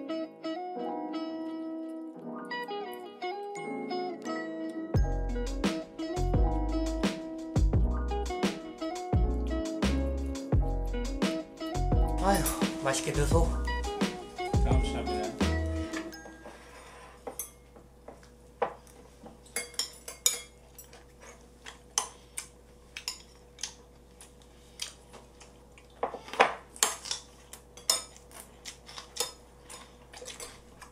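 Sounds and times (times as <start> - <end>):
metal chopsticks clinking on bowls: 19.5 - 21.1.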